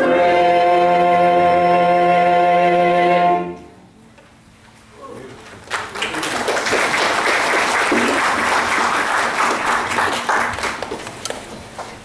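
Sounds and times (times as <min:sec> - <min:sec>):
audience applauding: 0:05.5 - 0:11.1.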